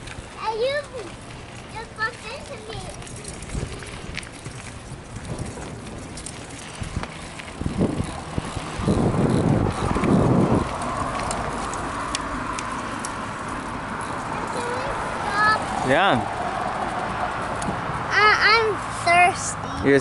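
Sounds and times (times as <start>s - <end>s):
bicycle tyres rolling on dirt: 0.0s - 19.2s.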